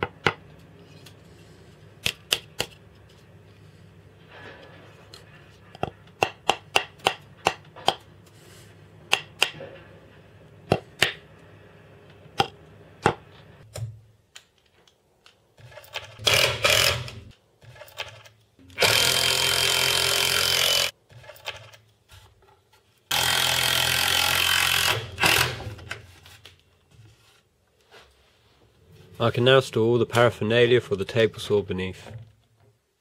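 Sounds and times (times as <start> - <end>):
power drill driving screws: 16.2 - 17.2, 18.8 - 20.9, 23.1 - 25.8.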